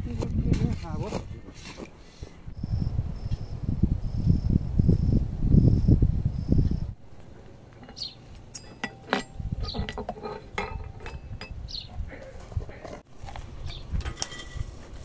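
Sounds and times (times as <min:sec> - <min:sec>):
crickets chirping: 0:02.6 - 0:07.0
kitchenware clinking: 0:07.8 - 0:11.8.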